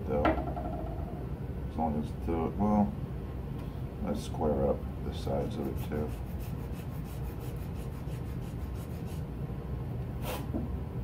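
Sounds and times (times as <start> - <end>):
hand file rasping on resin: 5.5 - 9.2.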